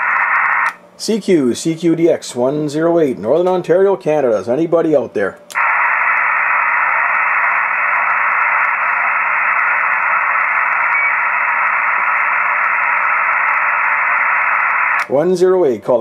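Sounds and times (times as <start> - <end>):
radio static: 0.0 - 0.8, 5.5 - 15.1
faint steady hum: 0.0 - 16.0.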